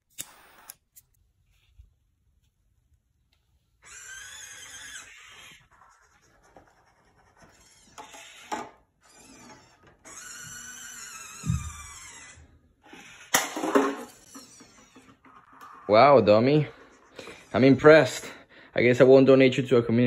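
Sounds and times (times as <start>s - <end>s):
robot arm motors whining: 3.8s - 5.6s, 7.5s - 13.4s, 14.1s - 15.9s.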